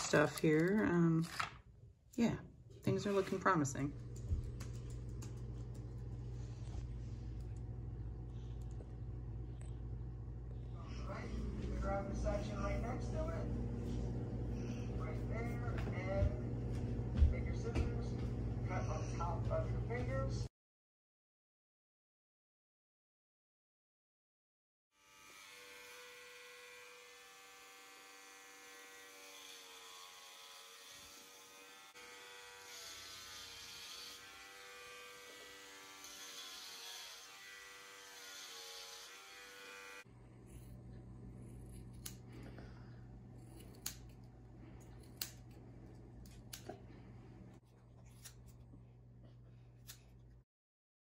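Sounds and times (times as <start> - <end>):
electric hair clippers buzzing: 25.0 - 42.6, 43.4 - 44.3
scissors snipping hair: 41.5 - 42.5, 43.4 - 45.6, 46.2 - 46.8, 48.1 - 48.6, 49.8 - 50.1.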